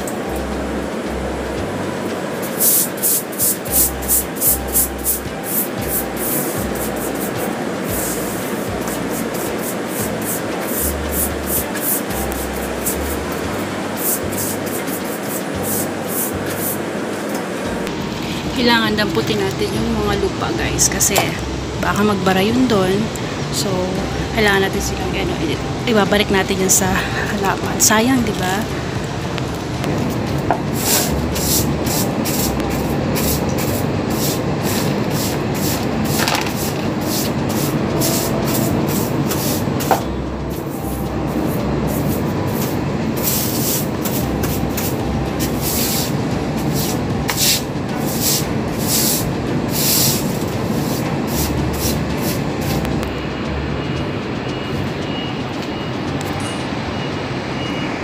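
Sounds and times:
city traffic hum: 0:00.0 - 0:58.0
broom sweeping wet tiles: 0:02.4 - 0:16.8, 0:30.7 - 0:40.0, 0:40.6 - 0:52.8
faint high beeping: 0:52.7 - 0:58.0.

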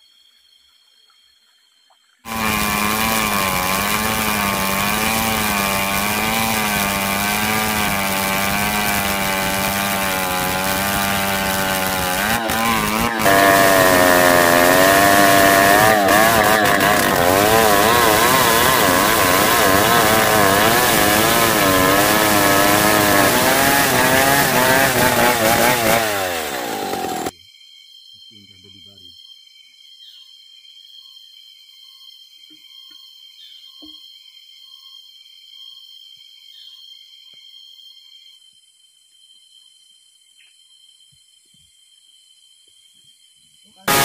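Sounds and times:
chainsaw cutting a log: 0:02.3 - 0:27.3.

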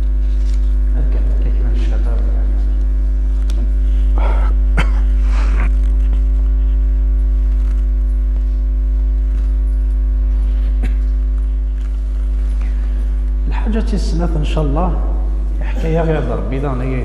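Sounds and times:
electrical mains hum: 0:00.0 - 0:17.0
breathy noises: 0:03.6 - 0:06.6.

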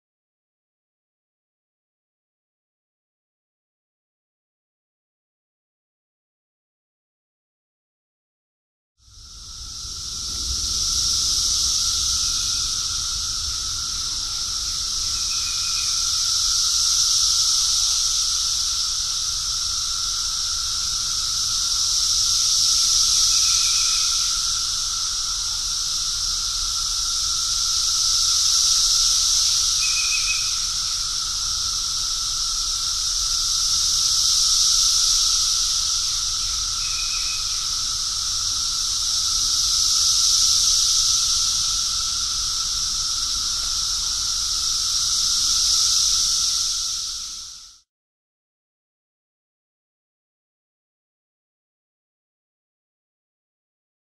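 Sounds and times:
cicadas buzzing in chorus: 0:09.0 - 0:47.9.

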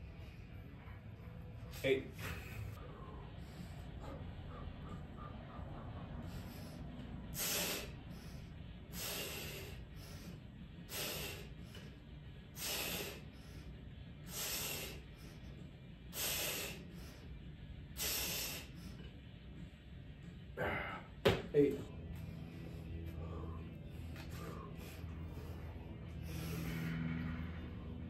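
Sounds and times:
man exhaling forcefully: 0:07.3 - 0:08.0, 0:08.9 - 0:10.2, 0:10.9 - 0:11.6, 0:12.6 - 0:13.3, 0:14.3 - 0:15.0, 0:16.1 - 0:16.9, 0:18.0 - 0:18.7.

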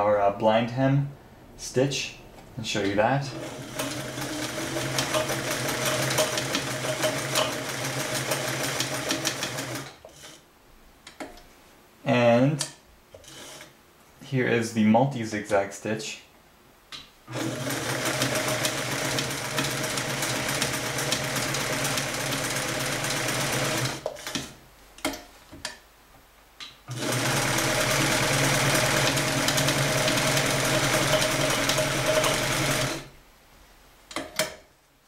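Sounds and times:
sewing machine running: 0:03.3 - 0:09.9, 0:17.3 - 0:24.5, 0:26.9 - 0:33.1.

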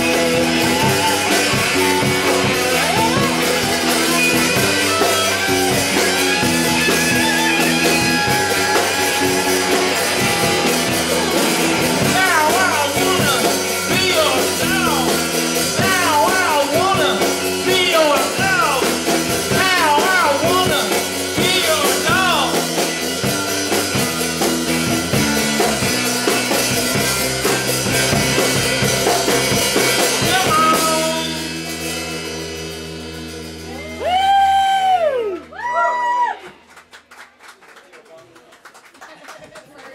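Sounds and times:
rock band playing live: 0:00.0 - 0:35.5
loud pitched cry: 0:04.8 - 0:12.0.

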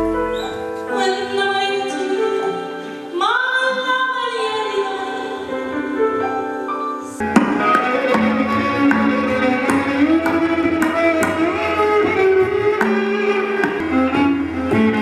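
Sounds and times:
sustained musical accompaniment: 0:00.0 - 0:15.0
struck percussion: 0:07.2 - 0:15.0.

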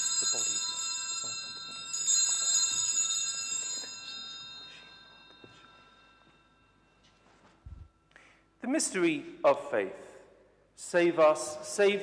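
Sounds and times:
small bells shaken in peals: 0:00.0 - 0:08.1.

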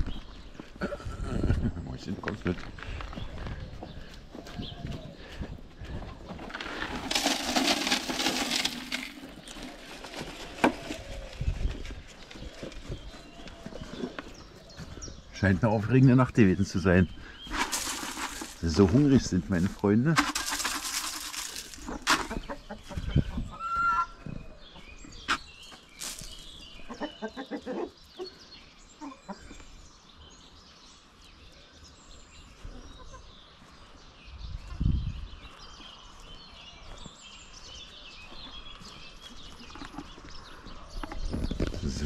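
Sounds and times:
chickens clucking: 0:20.3 - 0:25.4, 0:26.8 - 0:29.7, 0:32.6 - 0:33.3.

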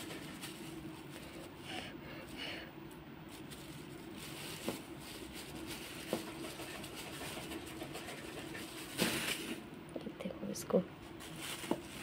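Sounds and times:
plastic bag crinkling: 0:00.0 - 0:01.7, 0:03.3 - 0:09.6, 0:11.0 - 0:12.0
faint steady hum: 0:00.0 - 0:12.0.

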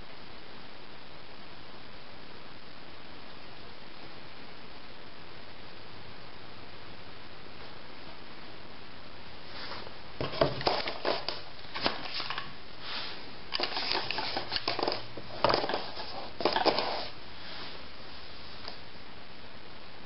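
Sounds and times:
background hiss: 0:00.0 - 0:20.0.

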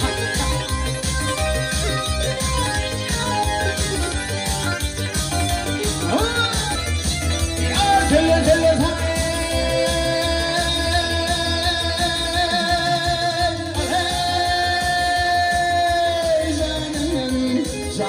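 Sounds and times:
amplified backing music with beat: 0:00.0 - 0:18.0
man singing into microphone: 0:07.7 - 0:18.0.

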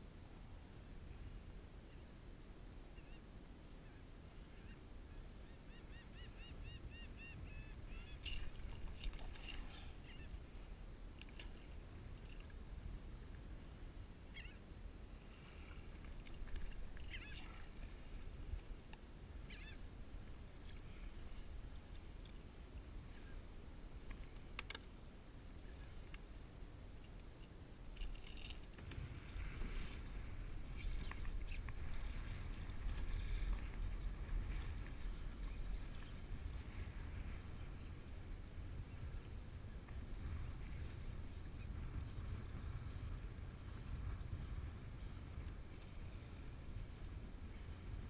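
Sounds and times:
wind and water rumble: 0:00.0 - 0:48.0
short high squeaks: 0:09.3 - 0:10.4, 0:14.3 - 0:14.6, 0:17.0 - 0:17.6, 0:19.5 - 0:19.8.

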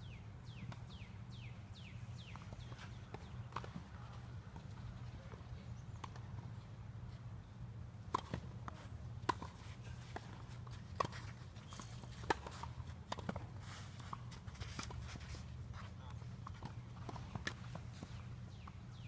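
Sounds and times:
tennis ball bounces: 0:02.2 - 0:06.7, 0:08.0 - 0:19.0.

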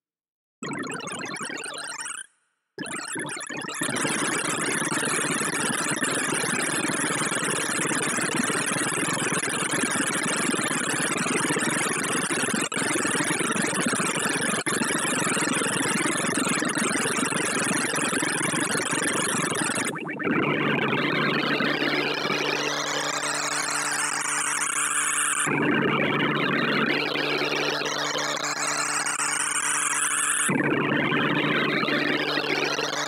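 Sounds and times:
rapid stream of synthesized tones: 0:15.9 - 0:33.0.

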